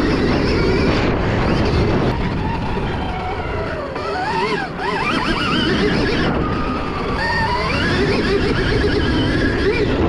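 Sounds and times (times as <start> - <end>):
electric motor whine: 0.0 - 10.0
wind and tyre noise: 0.0 - 10.0.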